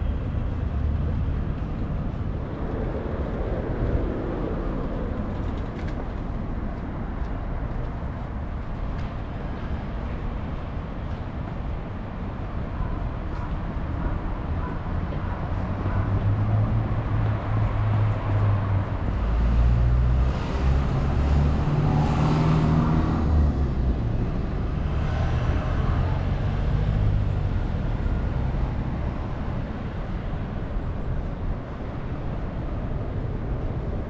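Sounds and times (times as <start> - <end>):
traffic low rumble: 0.0 - 34.0
vehicle passing close by: 16.2 - 29.2.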